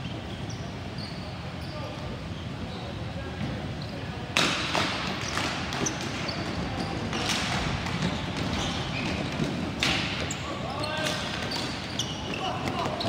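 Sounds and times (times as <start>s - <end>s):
hockey sticks clacking on ball: 4.4s - 13.0s.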